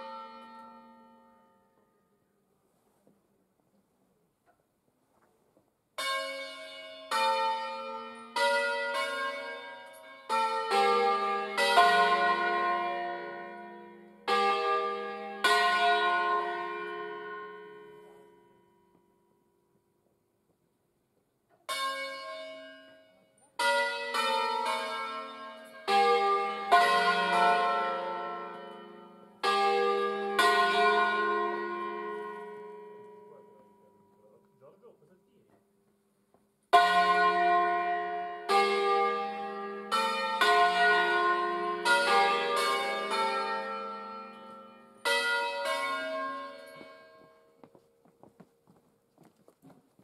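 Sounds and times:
church bells pealing: 0:00.0 - 0:02.0, 0:06.0 - 0:19.0, 0:21.7 - 0:35.0, 0:36.7 - 0:47.8.

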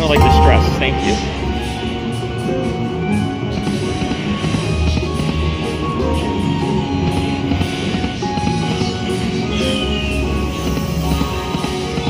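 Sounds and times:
slot machine bonus music: 0:00.0 - 0:02.9.

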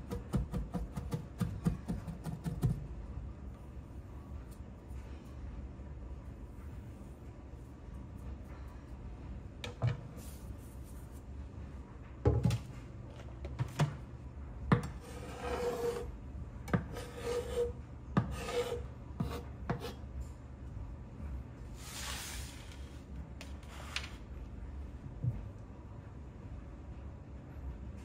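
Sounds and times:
rough scraping on cutting board: 0:15.0 - 0:16.1, 0:16.9 - 0:20.0.

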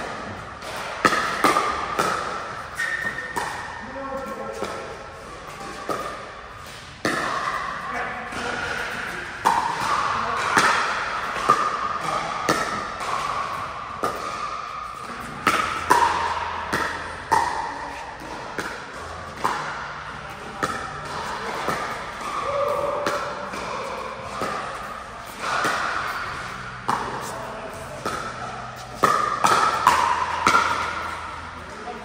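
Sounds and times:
paddles hitting plastic ball: 0:08.3 - 0:31.5.

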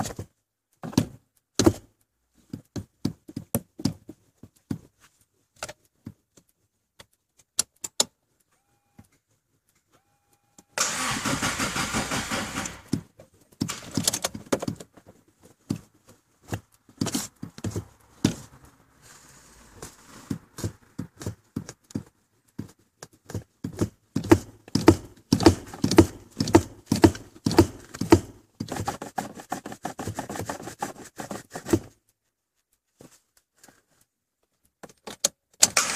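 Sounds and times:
accelerator pedal clicks and thumps: 0:00.0 - 0:04.9, 0:12.6 - 0:18.6, 0:20.3 - 0:29.7
car starter cranking: 0:10.8 - 0:13.0.

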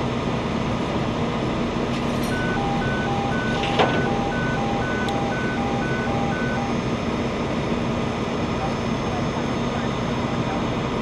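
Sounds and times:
steady low hum: 0:00.0 - 0:11.0
electronic alarm beeping high-low: 0:02.3 - 0:07.0.

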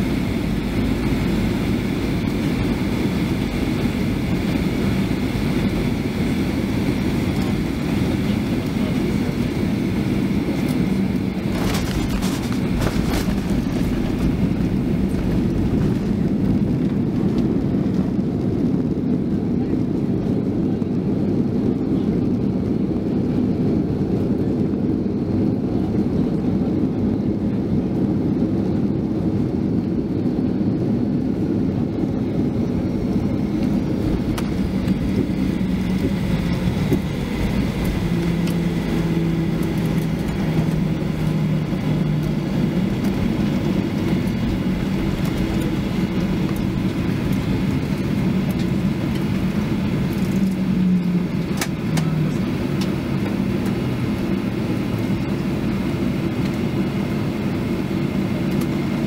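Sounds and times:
low engine tones: 0:00.0 - 0:27.8, 0:31.3 - 0:56.8
jet engines rumbling: 0:00.0 - 0:59.0
wheels rolling on pavement: 0:11.4 - 0:16.7.

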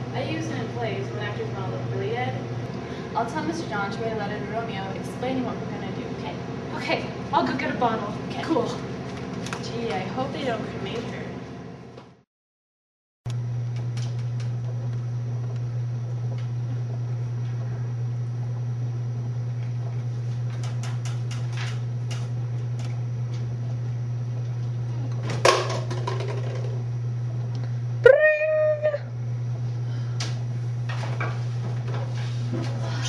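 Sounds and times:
low room hum: 0:00.0 - 0:12.2, 0:13.3 - 0:33.0.

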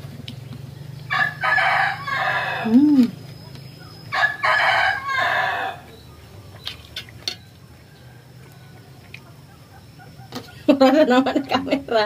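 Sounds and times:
rooster crowing: 0:01.1 - 0:02.8, 0:04.1 - 0:06.1, 0:07.6 - 0:10.3.

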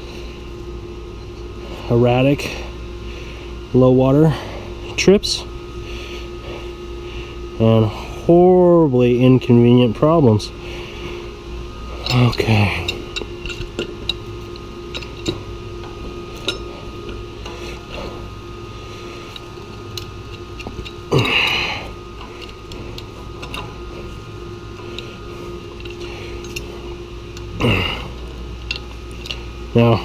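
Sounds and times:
low hum: 0:00.0 - 0:30.0
metal tools clinking on steel: 0:11.9 - 0:18.2, 0:19.2 - 0:30.0
metal tools clattering: 0:12.0 - 0:14.3, 0:14.9 - 0:18.1.

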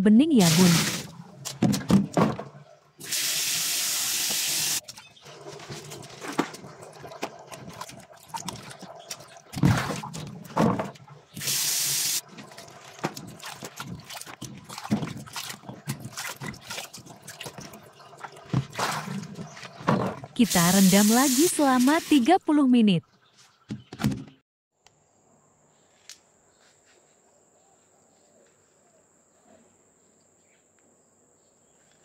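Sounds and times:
tap water running into basin: 0:00.4 - 0:02.4, 0:03.0 - 0:22.3
water splashing: 0:00.4 - 0:22.2.

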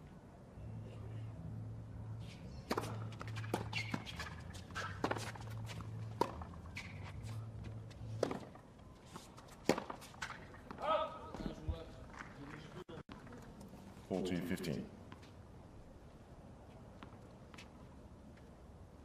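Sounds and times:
shoe squeaks: 0:02.2 - 0:05.8, 0:06.6 - 0:07.5
tennis ball bouncing: 0:02.7 - 0:10.8.

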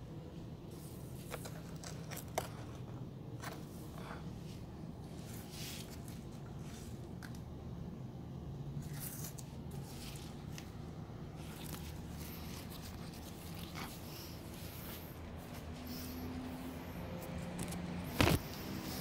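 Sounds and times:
low background hum: 0:00.0 - 0:19.0
hands rustling plants: 0:08.8 - 0:19.0
plastic plant tag scraping: 0:08.8 - 0:19.0.

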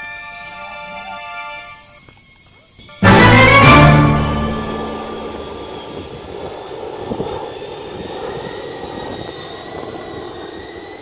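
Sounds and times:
electric motor whine: 0:00.2 - 0:11.0
small wheels rolling on asphalt: 0:05.2 - 0:11.0.

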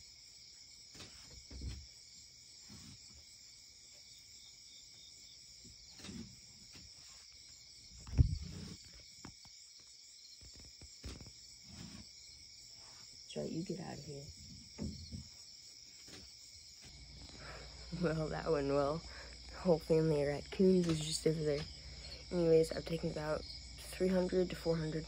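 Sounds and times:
crickets chirring: 0:00.0 - 0:25.0
dull low thumps: 0:08.1 - 0:08.6.

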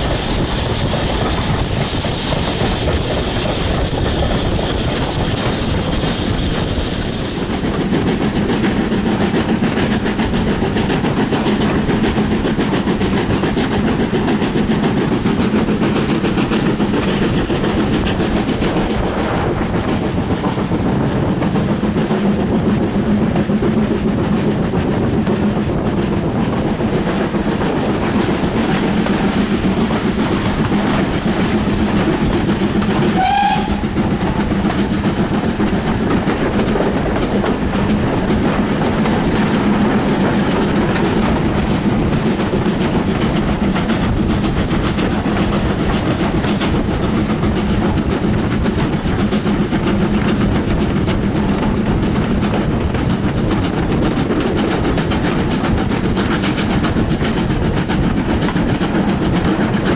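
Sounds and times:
train wheels rumbling on rails: 0:00.0 - 0:59.9
wind rushing: 0:00.0 - 0:59.9
steam whistle toot: 0:33.2 - 0:33.8.

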